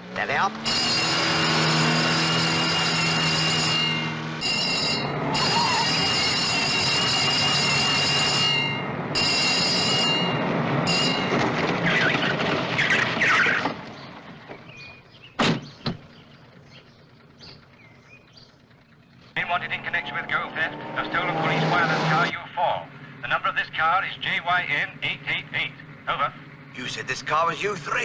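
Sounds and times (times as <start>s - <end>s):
car engine noise: 0.0s - 28.0s
car tyres squealing: 0.4s - 15.1s, 19.4s - 22.3s.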